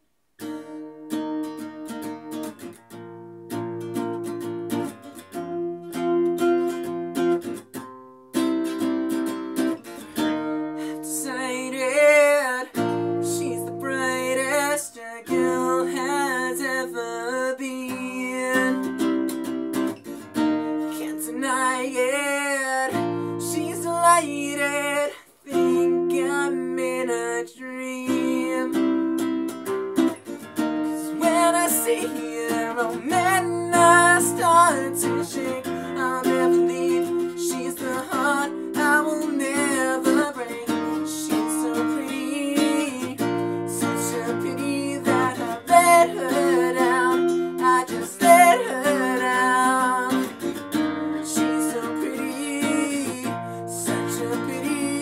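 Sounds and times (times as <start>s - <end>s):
classical guitar strumming chords: 0.0s - 55.0s
man singing: 10.8s - 19.0s, 20.8s - 29.2s, 30.9s - 55.0s.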